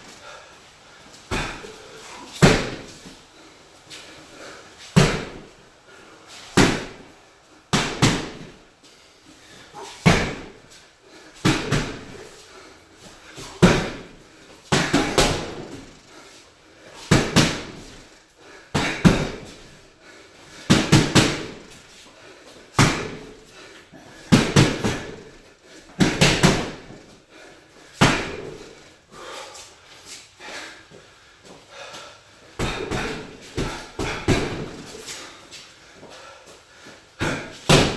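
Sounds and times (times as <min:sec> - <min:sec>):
gloves punching heavy bag: 0:01.3 - 0:03.1, 0:04.9 - 0:05.5, 0:06.5 - 0:07.1, 0:07.7 - 0:08.6, 0:09.8 - 0:16.3, 0:16.9 - 0:19.8, 0:20.6 - 0:21.9, 0:22.8 - 0:28.8, 0:32.6 - 0:35.4, 0:37.2 - 0:37.9.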